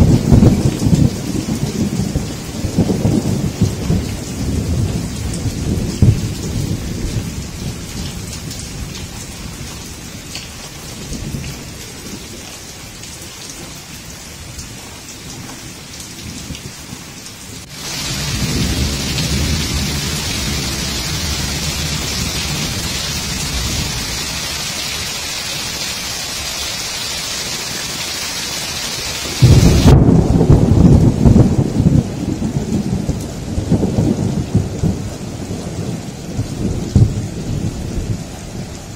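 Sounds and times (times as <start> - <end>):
thunder rumbling: 0.0 - 12.4, 17.6 - 26.1, 29.2 - 38.9
water running off roof: 0.0 - 33.2
heavy rain pouring: 0.0 - 38.9
loud thunder clap: 17.7 - 24.0, 29.4 - 35.1, 35.8 - 38.2.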